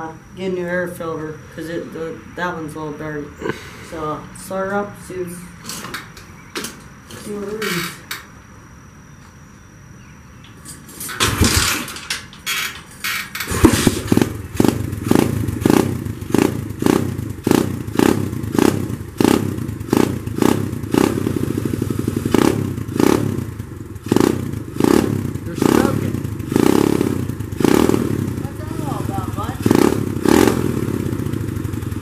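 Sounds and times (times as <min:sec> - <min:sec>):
motorcycle engine starting and running: 0:10.8 - 0:32.0.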